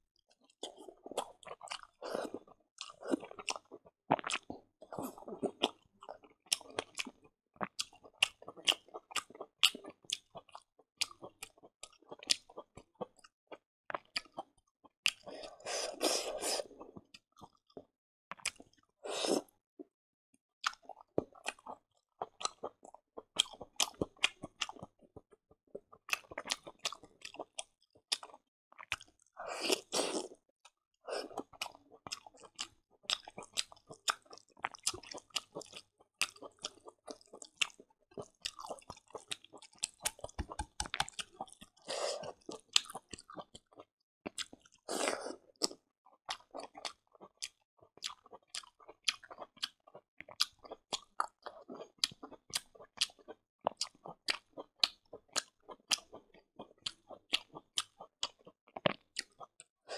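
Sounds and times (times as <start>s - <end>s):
crunchy chewing: 31.1s - 59.6s
wet mouth clicks and smacks: 39.8s - 41.2s.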